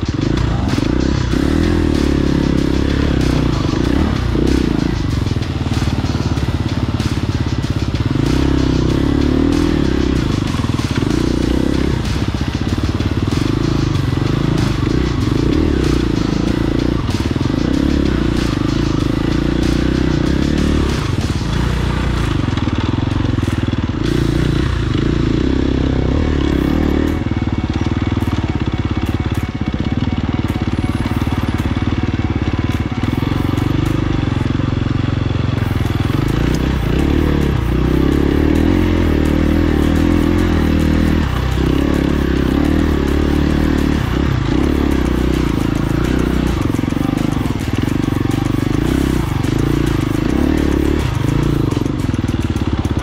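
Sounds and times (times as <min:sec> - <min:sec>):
off-road vehicle engine revving: 0:00.0 - 0:53.0.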